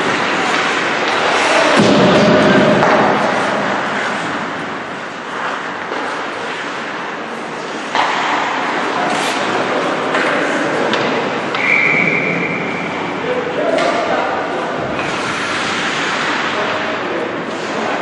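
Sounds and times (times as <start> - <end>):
skates scraping on ice: 0.0 - 11.6, 14.5 - 18.0
hockey sticks and puck knocking: 0.0 - 12.1, 14.8 - 16.8
indoor arena crowd noise: 0.0 - 18.0.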